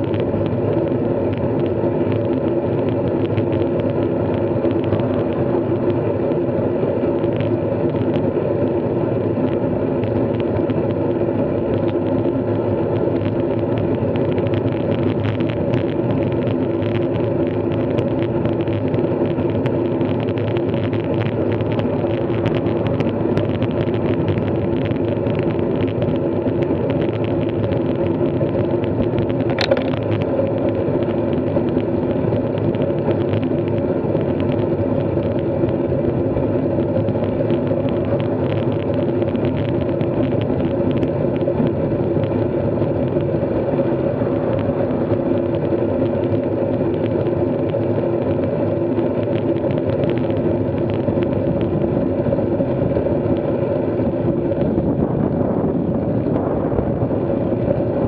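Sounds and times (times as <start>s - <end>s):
bike droning: 0.0s - 58.0s
sharp click: 29.5s - 30.0s.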